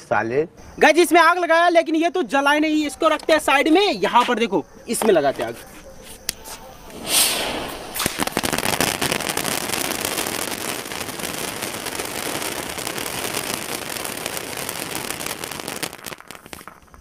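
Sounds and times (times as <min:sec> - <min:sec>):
firecracker fountain hissing: 0:06.1 - 0:17.0
dense crackling of sparks: 0:06.3 - 0:17.0.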